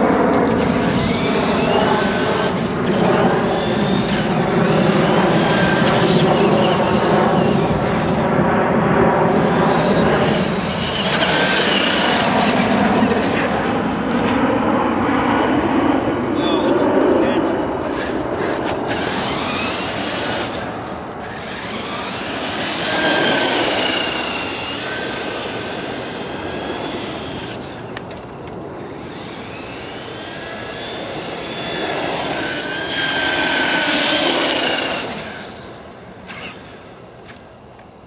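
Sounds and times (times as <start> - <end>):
electric motors whining: 0.0 - 38.0
tyre and drivetrain noise: 17.9 - 35.6.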